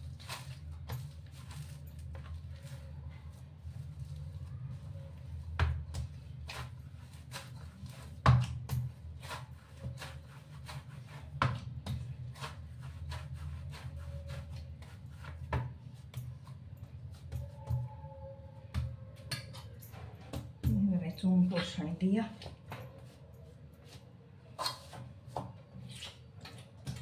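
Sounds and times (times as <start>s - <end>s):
hands kneading dough: 0.0s - 27.0s
dough thumping against bowl: 5.5s - 10.2s.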